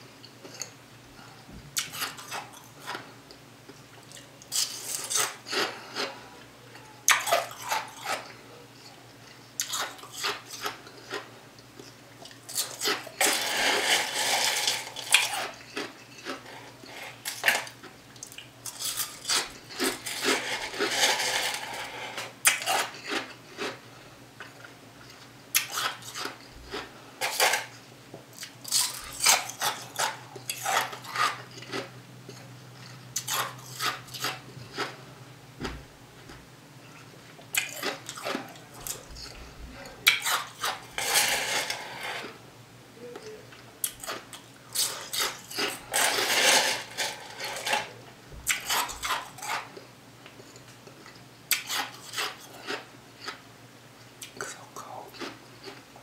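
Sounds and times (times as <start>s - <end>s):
plastic spoon scraping a cup: 12.8s - 17.7s, 18.8s - 23.0s, 40.2s - 42.4s, 44.8s - 48.0s.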